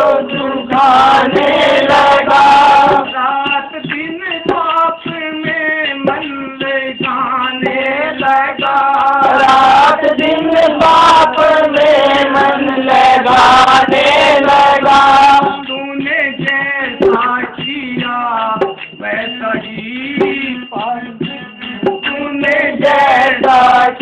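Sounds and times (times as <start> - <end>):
man singing: 0.0 - 24.0.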